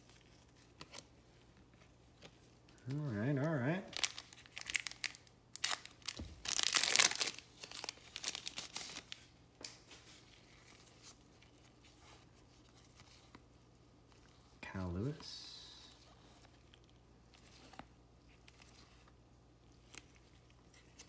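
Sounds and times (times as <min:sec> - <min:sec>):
cards rustling: 0:00.0 - 0:14.5, 0:15.1 - 0:21.0
wrapper tearing and crinkling: 0:03.9 - 0:09.2.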